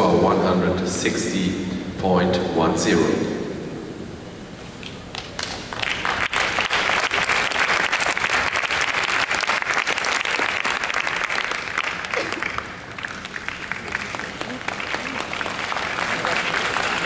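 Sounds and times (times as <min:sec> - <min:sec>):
audience applauding: 0:05.1 - 0:17.0.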